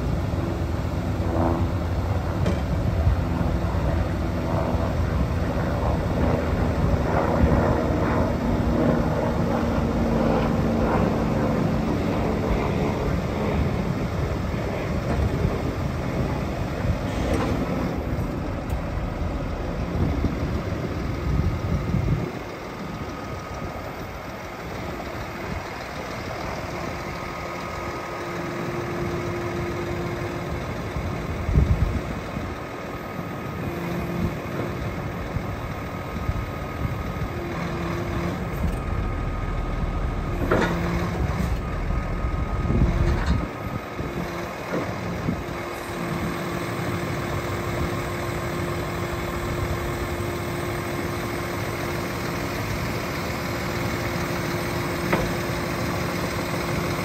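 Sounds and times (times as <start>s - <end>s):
diesel truck engine running: 0.0s - 57.0s
hydraulic crane whine: 0.0s - 57.0s
loud clunk: 40.3s - 41.7s.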